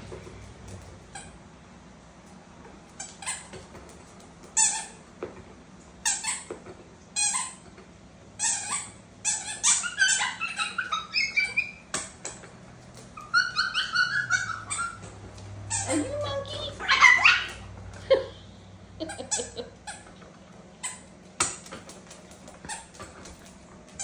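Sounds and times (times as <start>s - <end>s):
pet animal squeaky calls: 8.5s - 11.9s, 13.2s - 15.1s, 16.7s - 17.6s.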